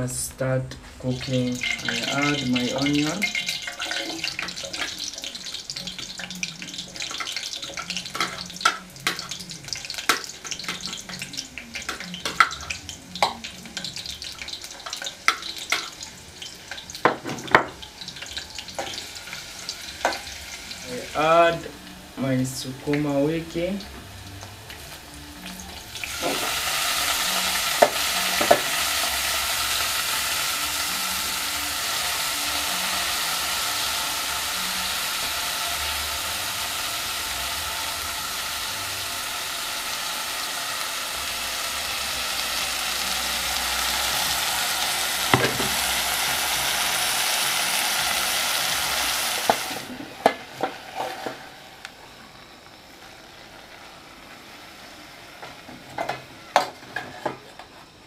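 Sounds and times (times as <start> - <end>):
greens sizzling in a pot: 0.0 - 58.0
pot and utensil knocks: 45.3 - 45.8.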